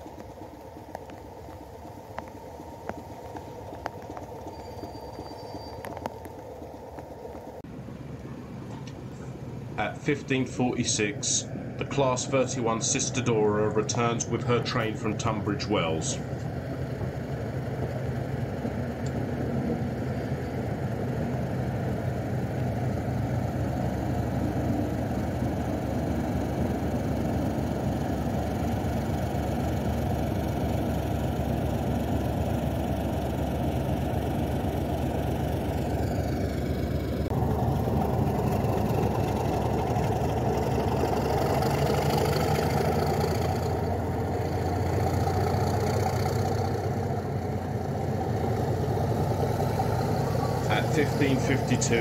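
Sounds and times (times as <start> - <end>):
diesel locomotive engines running: 0.0 - 52.0
diesel locomotives idling: 0.0 - 52.0.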